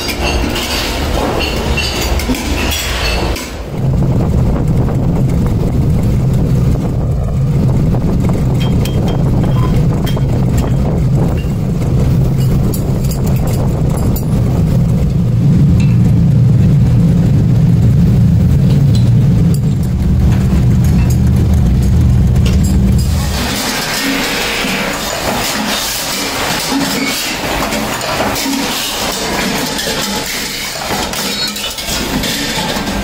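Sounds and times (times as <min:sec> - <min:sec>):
machine droning: 0:00.0 - 0:33.0.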